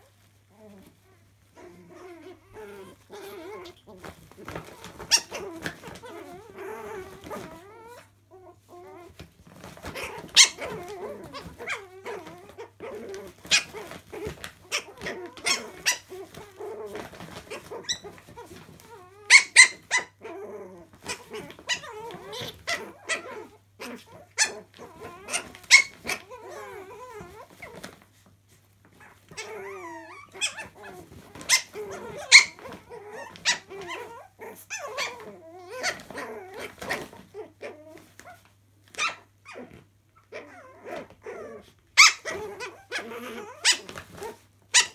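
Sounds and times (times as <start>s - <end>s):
puppies growling: 0.0s - 44.9s
puppies yipping: 1.5s - 8.0s, 9.5s - 20.3s, 24.1s - 27.9s, 29.0s - 37.1s, 42.0s - 44.9s.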